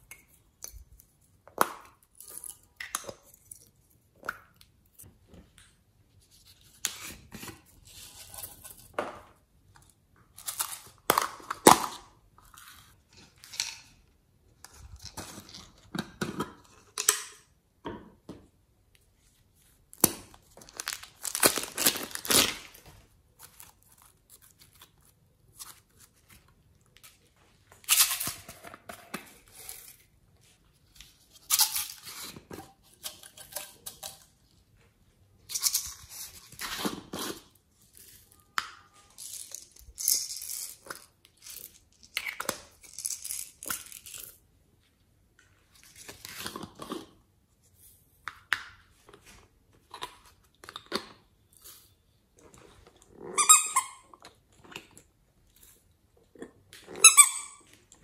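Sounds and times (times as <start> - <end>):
plastic rustling and crackling: 20.3 - 30.1.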